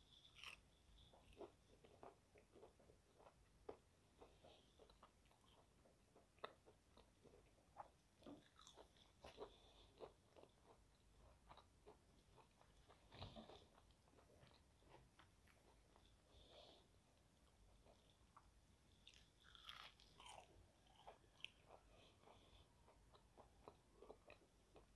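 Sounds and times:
crunching fried chicken: 0:08.4 - 0:10.8, 0:19.0 - 0:21.9.

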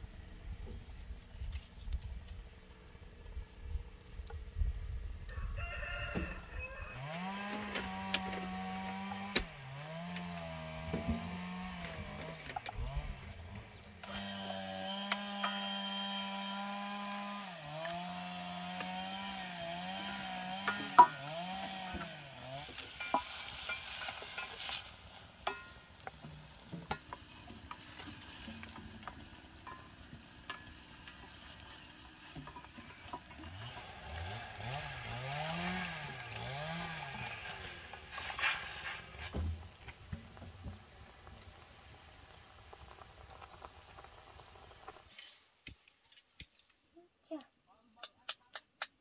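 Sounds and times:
pot sizzling: 0:15.1 - 0:18.0, 0:22.5 - 0:45.4.

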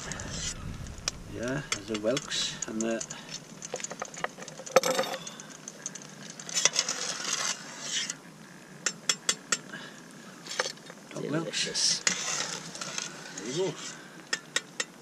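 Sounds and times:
metal ladle scraping in pot: 0:06.4 - 0:08.2, 0:12.0 - 0:14.0.

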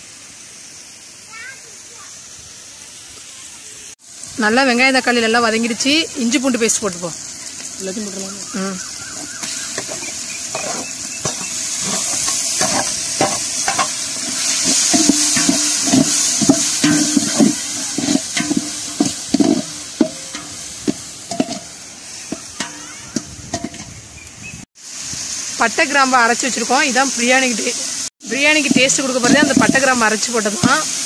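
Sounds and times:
vegetables sizzling in oil: 0:00.0 - 0:31.0
metal ladle knocking pot: 0:09.2 - 0:24.0, 0:28.5 - 0:30.7.

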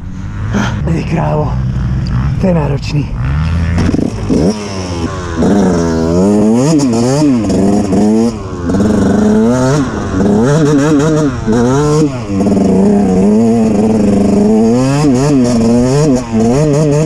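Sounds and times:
motocross bike engine revving: 0:00.0 - 0:17.0.

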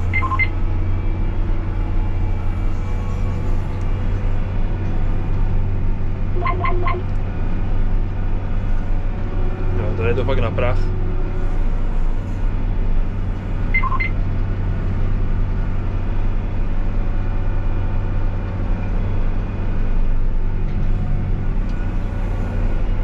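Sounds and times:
tractor diesel engine under load: 0:00.0 - 0:23.0
short electronic beeps: 0:00.1 - 0:00.5, 0:06.4 - 0:07.0, 0:13.7 - 0:14.2.

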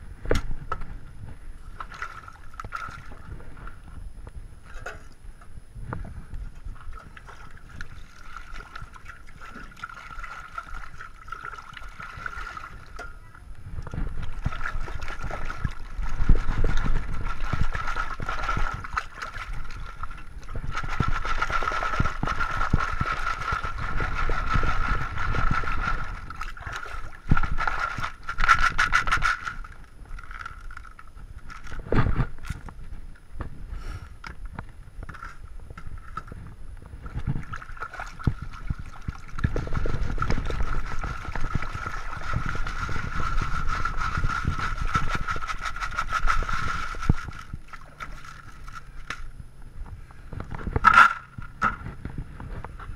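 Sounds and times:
water sloshing: 0:01.6 - 0:04.0, 0:06.5 - 0:33.5, 0:35.1 - 0:49.3
gravel rattling on wire mesh: 0:13.8 - 0:32.8, 0:37.3 - 0:49.3.

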